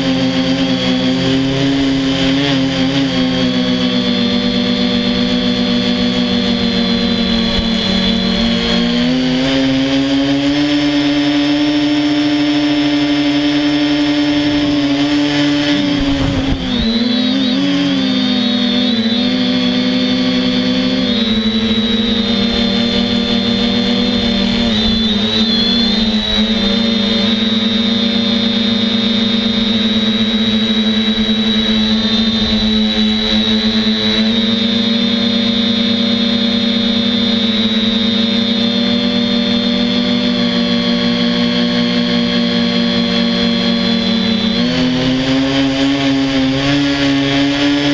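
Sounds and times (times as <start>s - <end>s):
quadcopter propellers buzzing: 0.0s - 47.9s.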